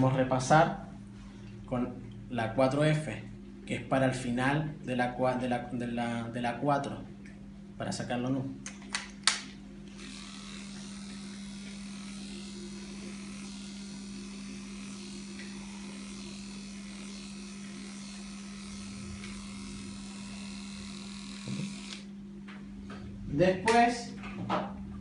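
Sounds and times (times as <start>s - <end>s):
electric clipper humming: 8.6s - 24.2s.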